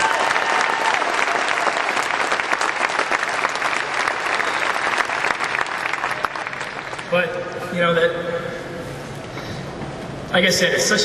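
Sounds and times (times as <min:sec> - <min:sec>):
large audience applauding: 0:00.0 - 0:07.2.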